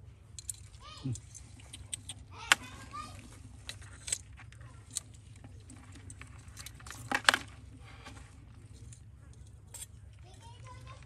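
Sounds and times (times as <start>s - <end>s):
metal tongs clicking on rocks: 0.3s - 2.7s.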